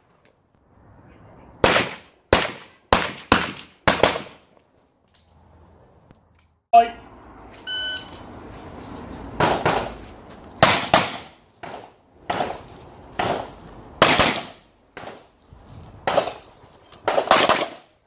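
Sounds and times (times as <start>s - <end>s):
pistol shots: 1.6s - 4.4s, 10.6s - 12.6s, 13.2s - 15.2s, 16.0s - 16.4s, 17.0s - 17.9s.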